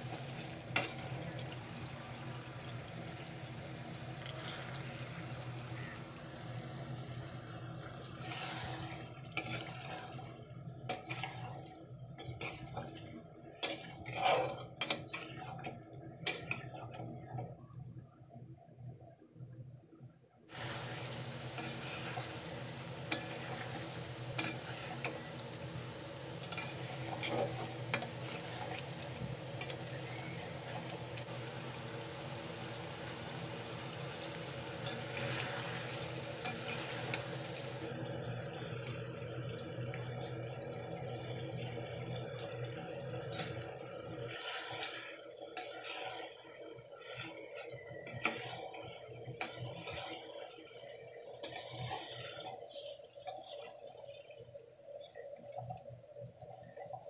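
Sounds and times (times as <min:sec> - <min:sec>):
metal spatula scraping pot: 0:00.0 - 0:01.5, 0:08.2 - 0:16.8, 0:21.5 - 0:25.4, 0:26.4 - 0:29.0, 0:36.4 - 0:37.2, 0:47.0 - 0:54.2
curry sizzling and bubbling: 0:00.0 - 0:19.0, 0:20.4 - 0:57.0.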